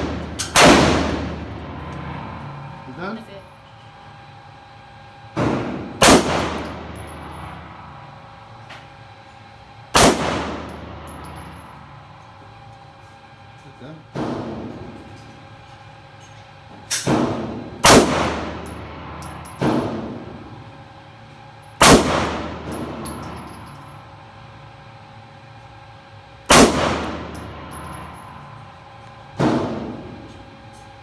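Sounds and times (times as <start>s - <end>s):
pistol shots echoing indoors: 0.0s - 1.5s, 5.4s - 6.9s, 9.9s - 11.0s, 16.9s - 18.7s, 21.8s - 23.3s, 26.5s - 27.5s.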